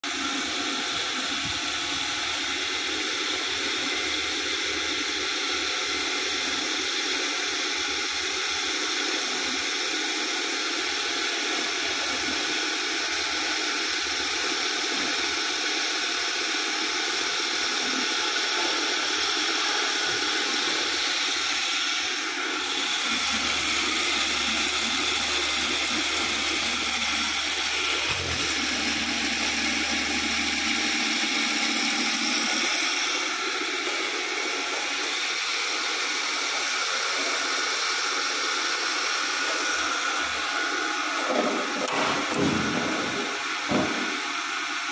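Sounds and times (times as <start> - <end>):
grinding machinery hiss and whine: 0.0 - 44.9.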